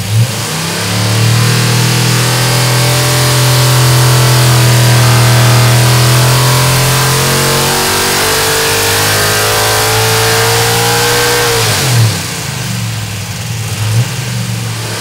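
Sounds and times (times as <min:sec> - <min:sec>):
race engine revving: 0:00.0 - 0:15.0.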